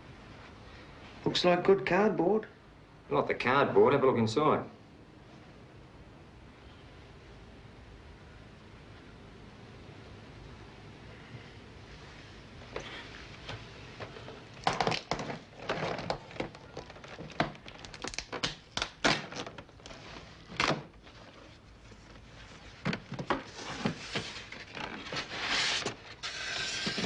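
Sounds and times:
polystyrene packing blocks handled: 14.0s - 27.0s
cardboard ripping and crinkling: 23.3s - 27.0s.

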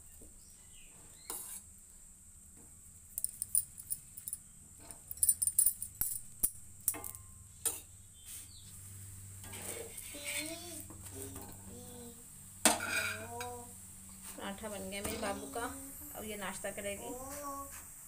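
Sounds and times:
utensil clinking on metal griddle: 3.2s - 7.9s, 12.7s - 13.5s.

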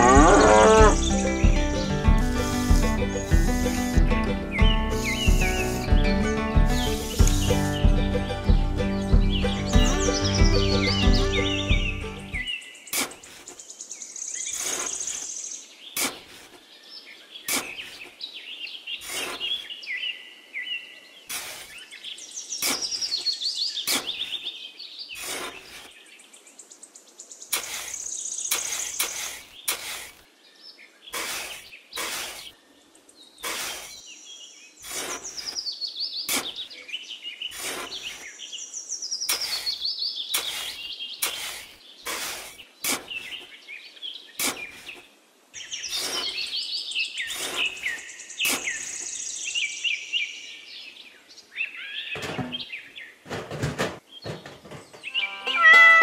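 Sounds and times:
birds chirping: 0.0s - 56.0s
shovel digging into damp sand: 2.1s - 4.0s, 5.0s - 5.9s, 6.8s - 7.8s, 12.9s - 13.6s, 14.5s - 16.6s, 17.4s - 18.2s, 19.0s - 19.7s, 21.3s - 21.9s, 22.6s - 24.5s, 25.1s - 26.0s, 27.5s - 30.2s, 31.1s - 32.6s, 33.4s - 34.1s, 34.8s - 36.7s, 37.5s - 38.3s, 39.3s - 43.5s, 44.4s - 45.1s, 45.9s - 46.6s, 47.2s - 49.1s.

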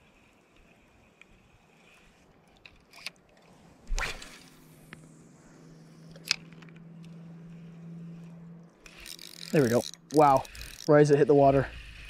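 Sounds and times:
small water splashes: 3.4s - 4.6s
fishing rod swish: 3.7s - 5.2s
fishing line hissing off spool: 7.0s - 12.0s.

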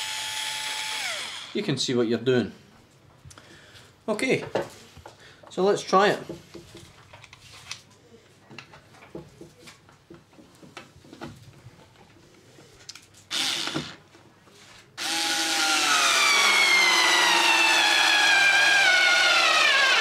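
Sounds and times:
cordless screwdriver whine: 13.3s - 14.0s.

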